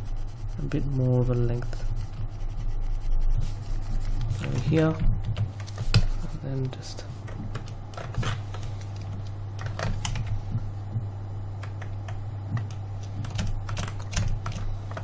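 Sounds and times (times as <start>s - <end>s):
steady low hum: 0.0s - 15.0s
computer keyboard keys clicking: 6.7s - 10.4s, 11.6s - 15.0s.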